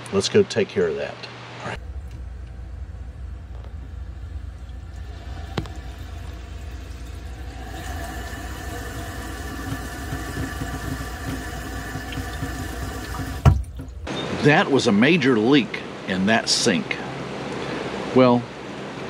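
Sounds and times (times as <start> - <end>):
low rumble: 1.8 - 11.8
water running at a sink: 3.9 - 14.1.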